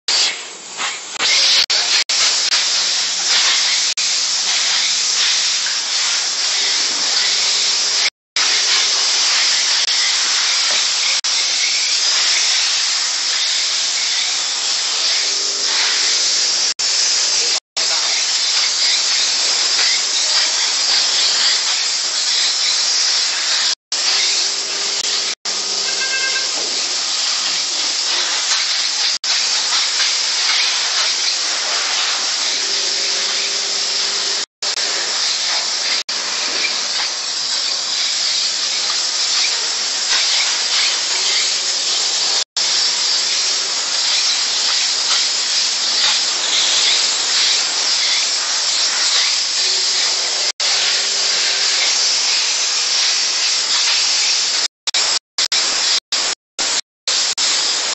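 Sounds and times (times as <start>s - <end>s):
steam nozzle hissing: 0.1s - 57.9s.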